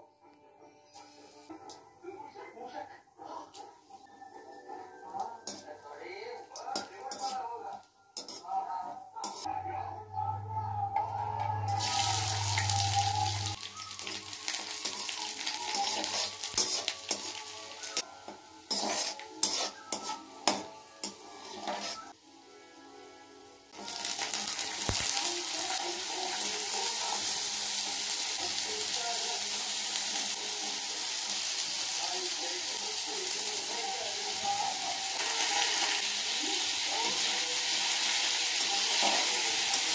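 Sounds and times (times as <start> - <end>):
metal spatula scraping pan: 6.6 - 7.4, 8.2 - 8.5, 9.2 - 9.5, 15.7 - 18.0, 18.7 - 22.2
food sizzling in hot oil: 11.7 - 22.2, 23.5 - 39.9.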